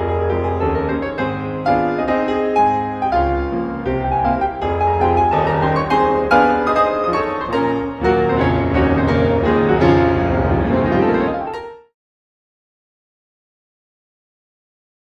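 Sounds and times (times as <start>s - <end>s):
piano music from vinyl record: 0.0s - 11.9s.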